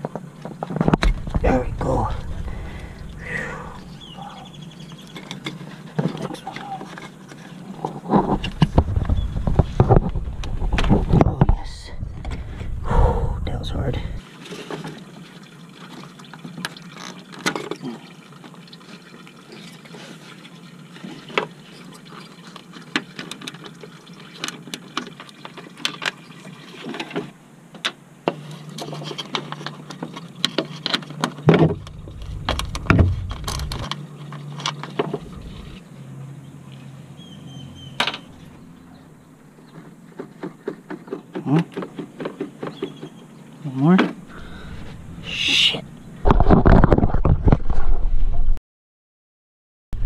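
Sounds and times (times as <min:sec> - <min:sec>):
liquid trickling through hose: 0:14.2 - 0:27.3.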